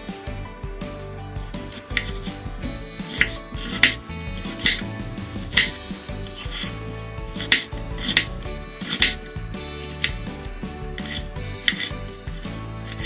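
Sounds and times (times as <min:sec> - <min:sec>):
background music: 0:00.0 - 0:13.0
knife slicing onion on board: 0:01.6 - 0:10.2, 0:11.0 - 0:12.0.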